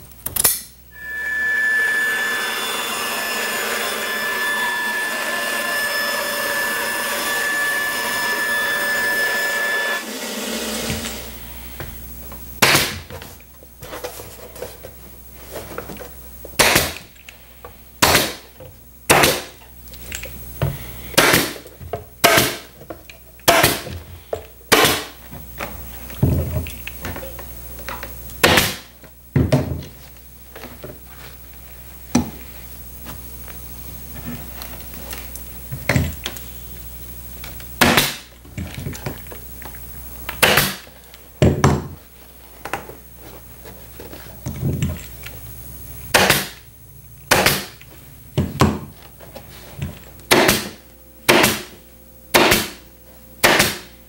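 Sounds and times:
band saw whining: 0:01.0 - 0:11.7
pneumatic stapler shots: 0:12.6 - 0:13.0, 0:16.6 - 0:17.0, 0:18.0 - 0:18.4, 0:19.1 - 0:19.5, 0:22.2 - 0:22.7, 0:23.4 - 0:23.8, 0:40.4 - 0:40.8, 0:46.1 - 0:46.6, 0:47.3 - 0:47.7, 0:50.3 - 0:51.7, 0:52.3 - 0:52.8, 0:53.4 - 0:53.9.

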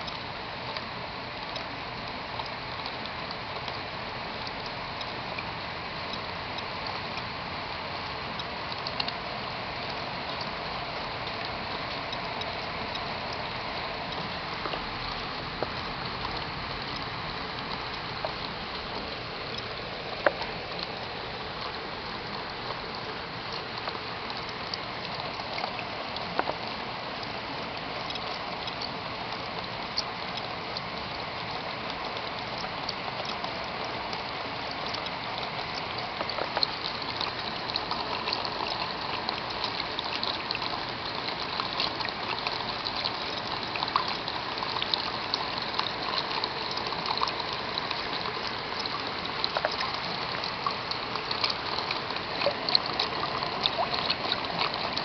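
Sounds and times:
patter of raindrops: 0:00.0 - 0:55.0
rainwater splashing and running: 0:00.0 - 0:55.0.

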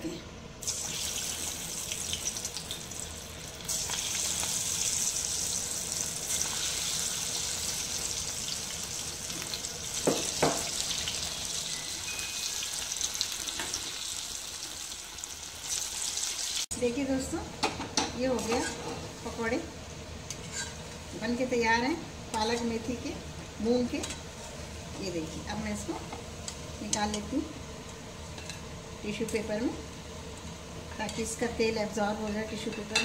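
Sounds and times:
batter deep-frying in oil: 0:00.6 - 0:17.1.

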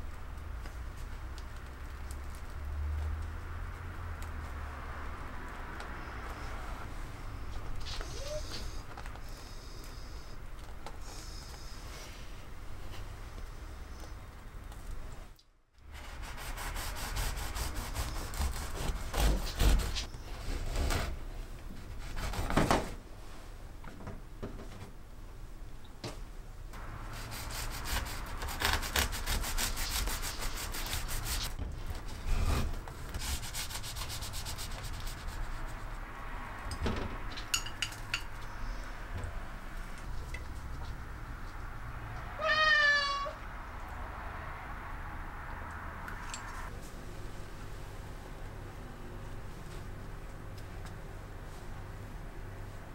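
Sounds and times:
bread knife sawing through bread: 0:15.9 - 0:21.2, 0:21.8 - 0:22.7, 0:27.1 - 0:31.5.

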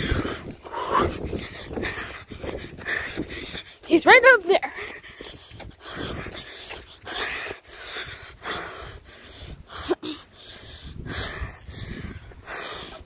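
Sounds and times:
heavy breathing: 0:00.0 - 0:04.0, 0:04.6 - 0:13.0.

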